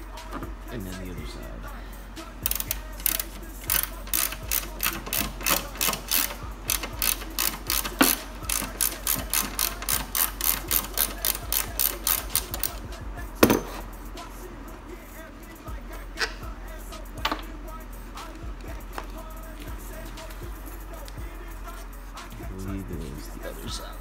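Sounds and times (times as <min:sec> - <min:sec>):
socket ratchet clicking: 0:02.4 - 0:13.9, 0:15.2 - 0:22.4
loud knock: 0:13.4 - 0:13.8.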